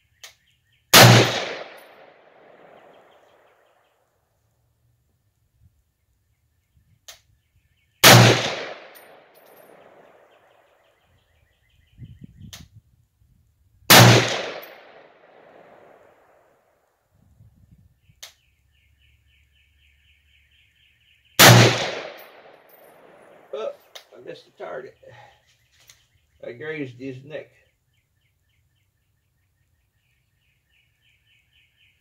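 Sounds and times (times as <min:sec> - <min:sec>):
rifle shots with echo: 0:00.9 - 0:03.4, 0:08.0 - 0:10.6, 0:13.9 - 0:16.5, 0:21.4 - 0:23.5.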